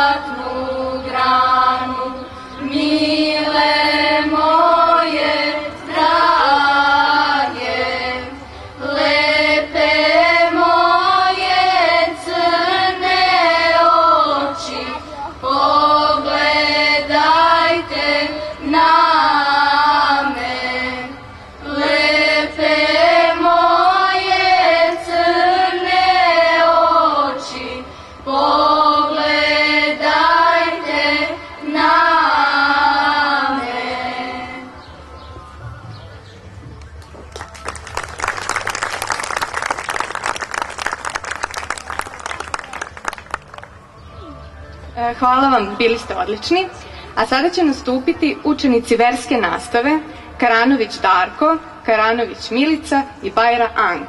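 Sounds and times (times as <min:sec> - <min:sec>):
youth choir singing a cappella: 0:00.0 - 0:34.9.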